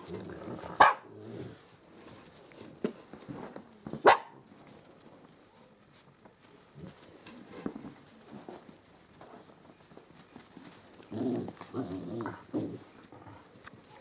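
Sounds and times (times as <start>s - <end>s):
dog barking: 0.8s - 1.1s, 4.0s - 4.4s.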